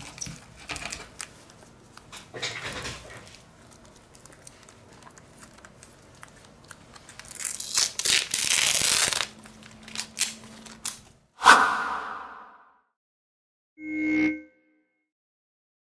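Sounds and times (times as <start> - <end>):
small clicks and handling noises: 0.0 - 7.4
crinkling and tearing: 3.2 - 11.1.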